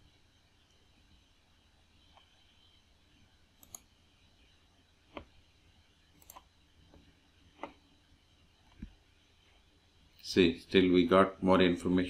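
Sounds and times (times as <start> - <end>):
computer mouse clicking: 3.6 - 3.9, 6.2 - 6.5.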